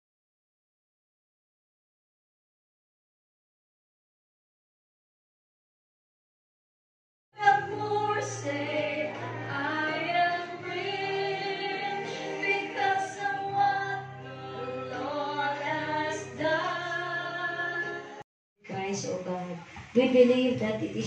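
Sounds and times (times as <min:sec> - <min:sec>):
group singing worship song: 0:07.4 - 0:18.2.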